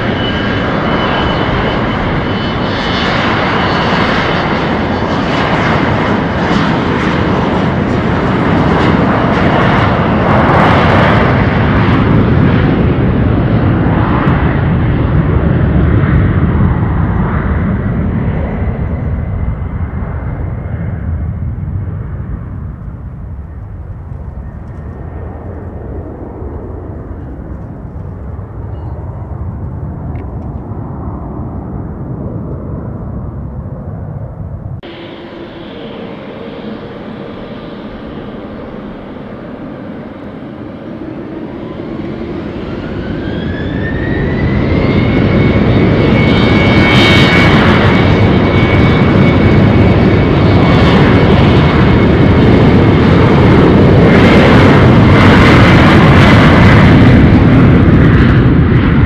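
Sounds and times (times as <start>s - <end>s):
jet engines climbing away: 0.0s - 59.0s
jet turbofans spooling up: 34.8s - 58.9s.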